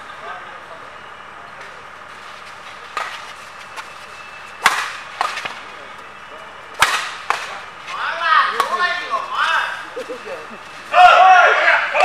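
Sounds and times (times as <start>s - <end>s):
racket hitting shuttlecock: 2.8s - 5.7s, 6.8s - 7.6s, 8.5s - 9.1s.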